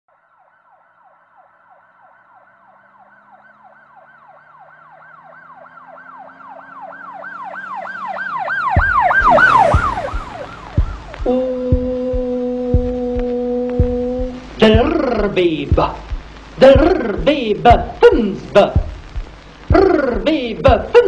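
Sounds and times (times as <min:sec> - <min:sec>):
siren wailing in yelp pattern: 0:00.1 - 0:15.2
low thumps: 0:08.6 - 0:21.0.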